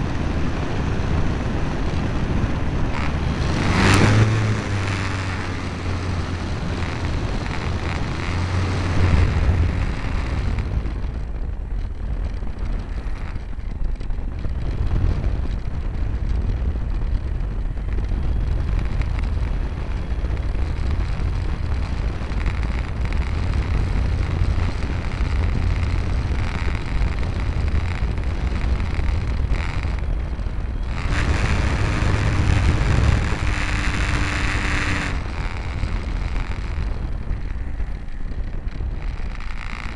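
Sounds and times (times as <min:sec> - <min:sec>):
electric motor and propeller hum: 0:00.0 - 0:39.9
wind buffeting camera: 0:00.0 - 0:39.9.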